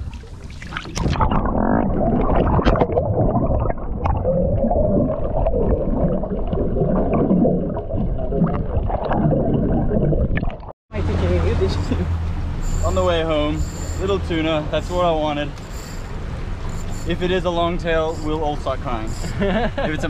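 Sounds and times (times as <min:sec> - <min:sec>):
boat engine rumble and whine: 0:10.9 - 0:20.0.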